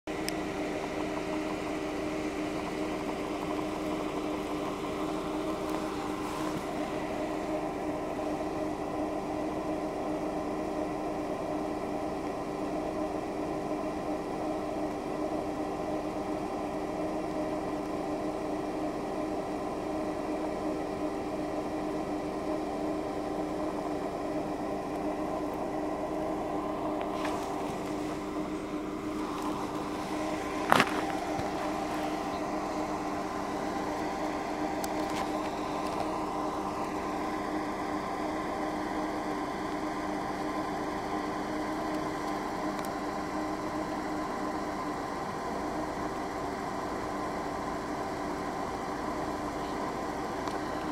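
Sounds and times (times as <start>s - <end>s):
steady machine hum: 0.0s - 50.9s.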